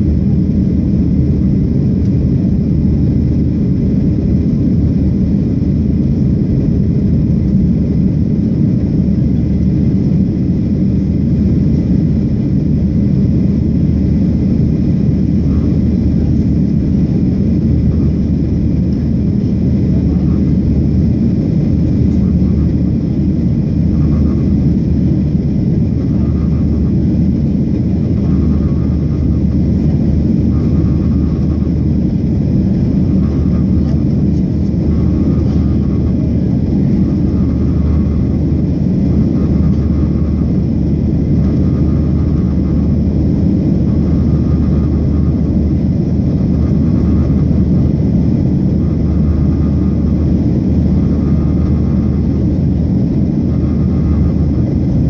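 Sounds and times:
jet engine and airflow rush: 0.0 - 55.0
faint tone: 15.2 - 47.6.

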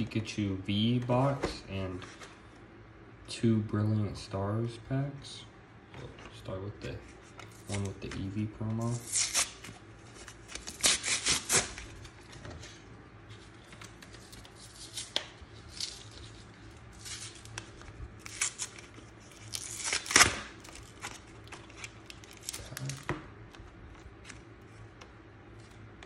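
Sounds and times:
cardboard packaging ripping: 8.8 - 12.3, 14.0 - 23.1
packaging rustling: 13.3 - 24.8.

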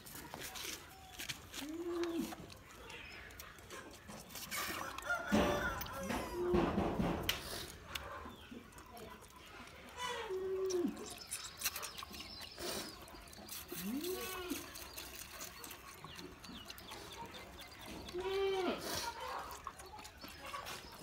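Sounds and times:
goat kids bleating: 18.1 - 19.2.

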